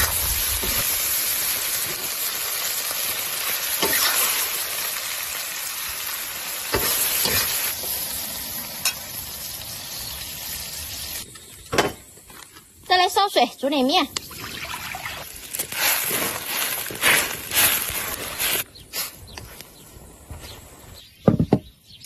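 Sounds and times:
food sizzling in a wok: 0.0 - 11.3, 14.8 - 18.6
metal spatula scraping a wok: 3.8 - 4.5.

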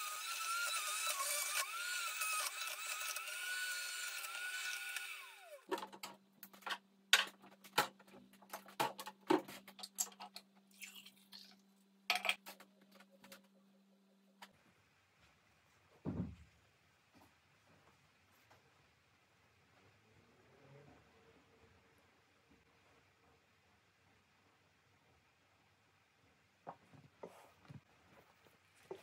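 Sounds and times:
juicer motor running: 0.0 - 5.7
kitchen items clicking and knocking: 12.1 - 13.5.

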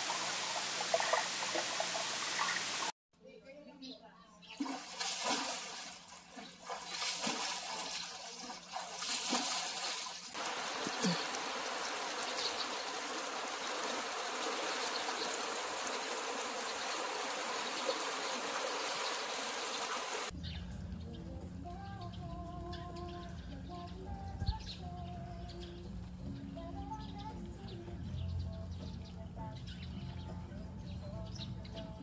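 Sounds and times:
swimmer splashing: 0.0 - 2.9, 4.6 - 20.3
rain falling on water: 10.4 - 20.3.

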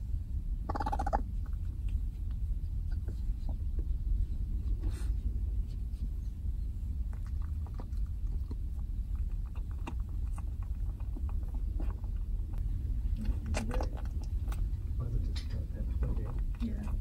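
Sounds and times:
steady low rumble: 0.0 - 17.0
raccoon churring call: 0.6 - 1.6, 7.1 - 12.6.

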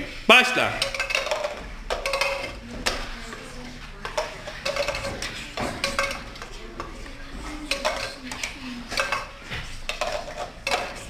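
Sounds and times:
plastic cups clacking on table: 0.5 - 11.0.

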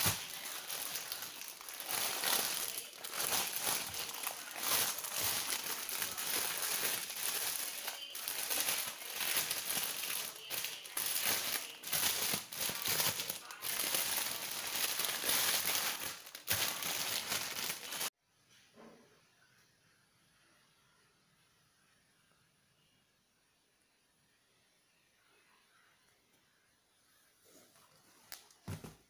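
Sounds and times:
plastic wrapping crinkling: 0.0 - 18.1.

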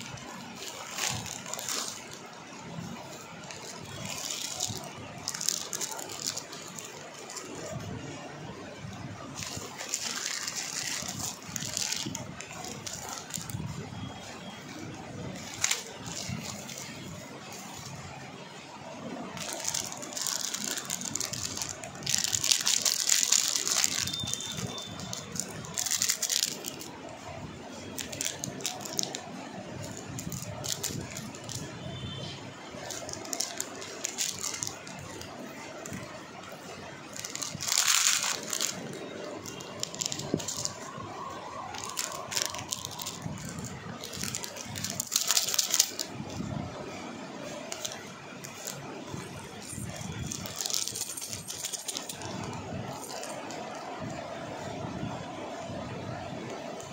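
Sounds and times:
plastic bags rustling: 0.0 - 18.3, 19.1 - 54.2
small metal pieces rattling: 3.6 - 7.4, 9.4 - 13.6, 19.4 - 26.9, 27.9 - 29.2, 29.8 - 31.8, 32.8 - 36.0, 37.1 - 40.9, 41.7 - 46.1, 49.6 - 53.4.

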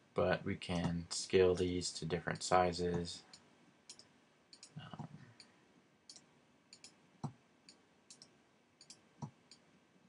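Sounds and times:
computer mouse clicks: 3.3 - 5.5, 6.1 - 9.6.

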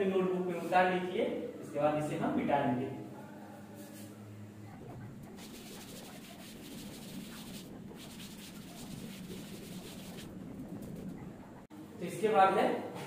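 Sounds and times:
cloth rubbing chalkboard: 3.8 - 11.7.

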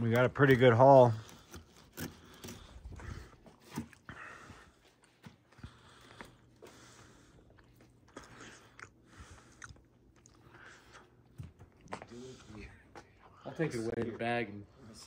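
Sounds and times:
knife cutting fish: 1.2 - 2.7.

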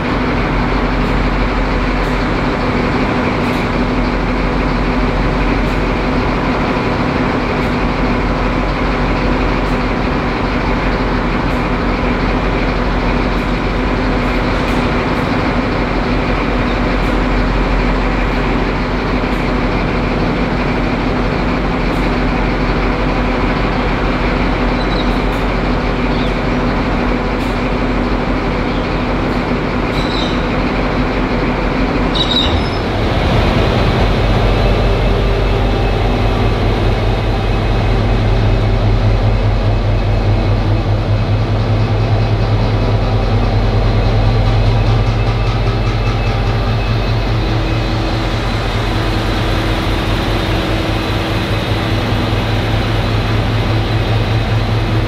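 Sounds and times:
diesel locomotive engine running: 0.0 - 55.0.

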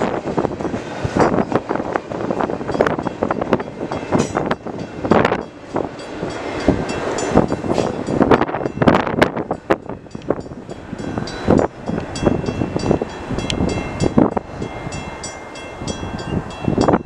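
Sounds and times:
train wheels clattering over rails: 0.0 - 10.6.

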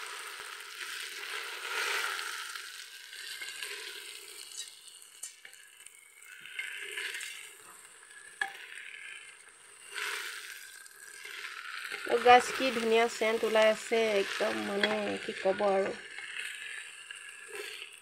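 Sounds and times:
rice sizzling in a pot: 0.0 - 18.0
small ticks: 0.8 - 13.8
wooden spoon scraping: 6.3 - 18.0.

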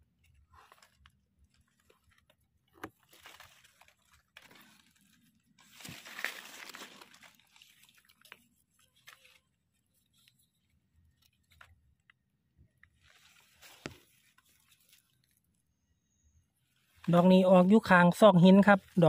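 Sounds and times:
dry leaves rustling and crackling: 2.9 - 10.6, 13.0 - 15.4.

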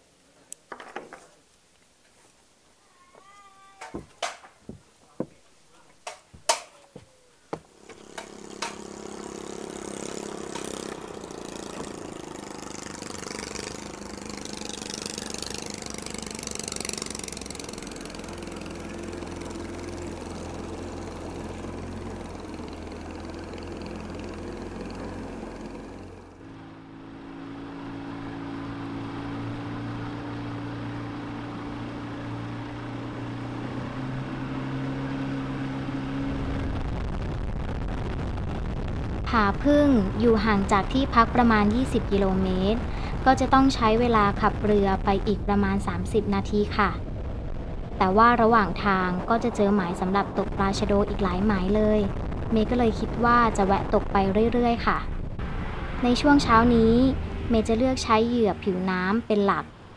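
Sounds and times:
outboard motor running: 7.7 - 37.3.

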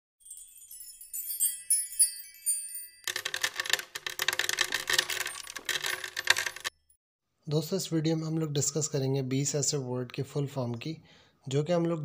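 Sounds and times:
bright chime-like tinkles: 0.2 - 3.2
dense jingle of rapid clinks: 0.2 - 6.8.

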